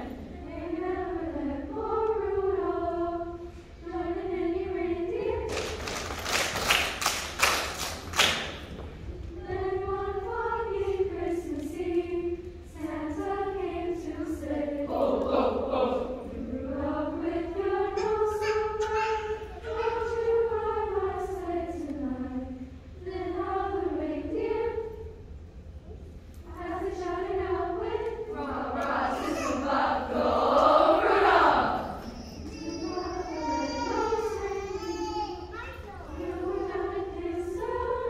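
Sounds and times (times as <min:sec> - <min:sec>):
girls' choir singing: 0:00.0 - 0:08.6, 0:09.3 - 0:25.2, 0:26.4 - 0:35.0, 0:36.1 - 0:38.0
hands clapping: 0:05.5 - 0:08.9.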